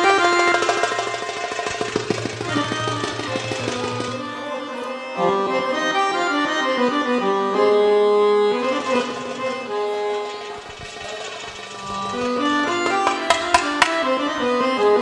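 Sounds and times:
accordion melody: 0.0s - 15.0s
goblet drum strokes: 0.1s - 4.5s, 8.6s - 14.2s.

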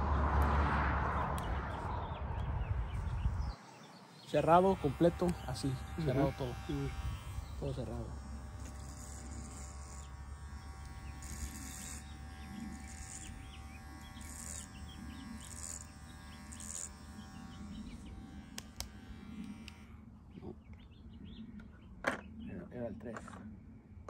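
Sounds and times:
birds chirping: 0.1s - 24.0s
electric hair clipper running: 2.4s - 20.1s
hair clipper clicks: 4.5s - 19.9s.

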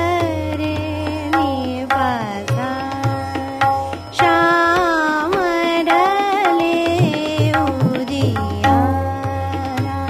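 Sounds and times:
tabla strokes: 0.0s - 10.0s
person singing classical vocals: 4.2s - 10.0s.

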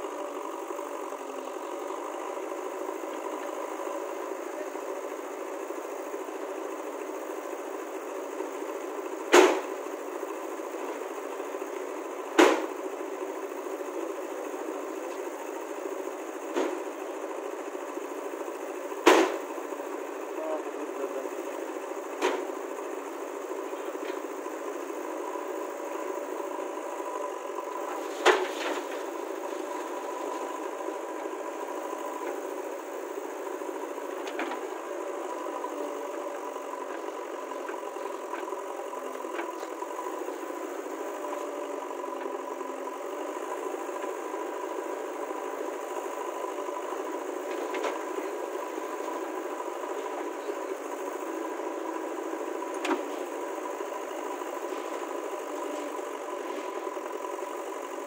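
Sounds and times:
diesel engine running: 0.0s - 58.0s
loud sharp knocks: 9.3s - 9.7s, 12.4s - 12.7s, 19.0s - 19.4s.

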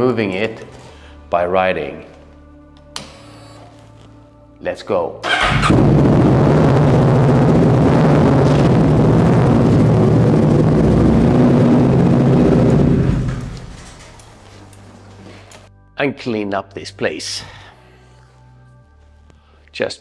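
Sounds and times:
motorcycle engine running: 5.3s - 14.5s.

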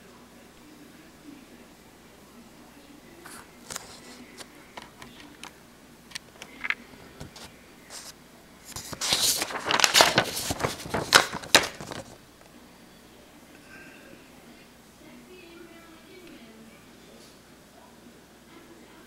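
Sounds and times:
paper rustling: 3.3s - 12.2s.

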